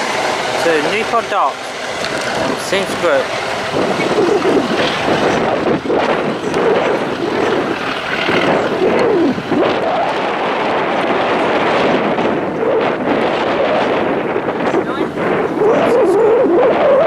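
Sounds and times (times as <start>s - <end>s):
train rushing rumble: 0.0s - 16.9s
wind buffeting microphone: 0.0s - 17.0s
wheel squeals: 0.6s - 10.0s.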